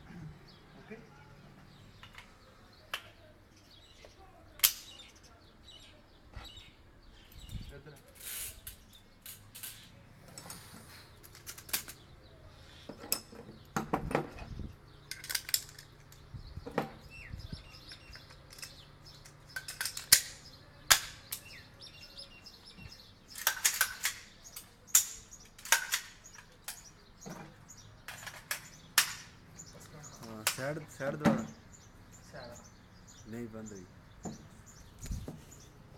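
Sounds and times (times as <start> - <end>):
rifle parts clicking together: 11.2 - 12.0, 15.0 - 16.3, 17.8 - 21.5, 23.3 - 26.9.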